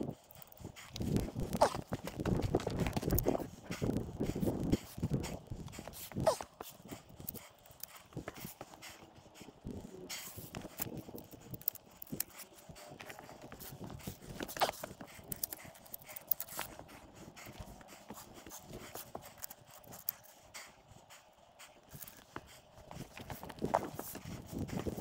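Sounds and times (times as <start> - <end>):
footsteps on rock: 1.0 - 5.2.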